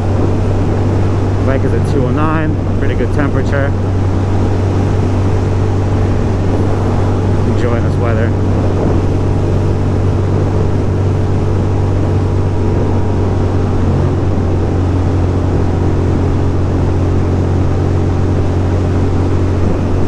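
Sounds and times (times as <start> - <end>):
motorcycle engine cruising: 0.0 - 20.0
wind and road noise: 0.0 - 20.0.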